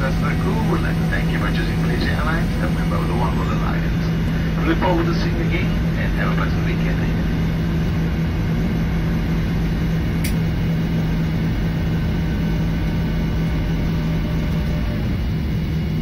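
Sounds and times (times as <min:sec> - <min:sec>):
jet engines idling hum: 0:00.0 - 0:16.0
sharp click: 0:10.2 - 0:10.4.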